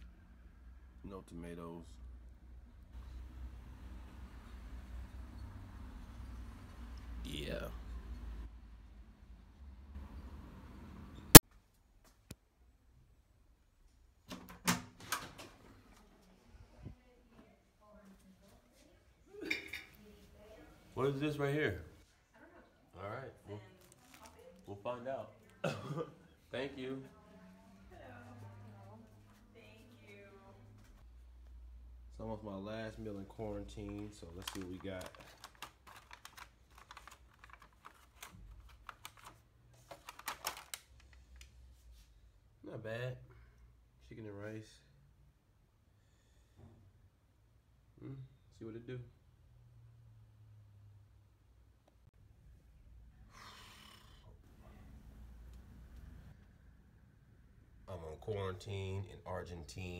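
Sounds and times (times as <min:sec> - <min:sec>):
food packaging crackling: 0:33.8 - 0:41.2.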